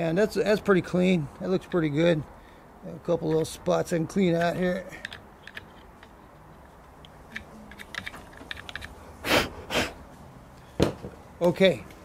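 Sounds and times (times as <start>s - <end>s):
screwdriver scraping plastic: 4.4s - 9.0s.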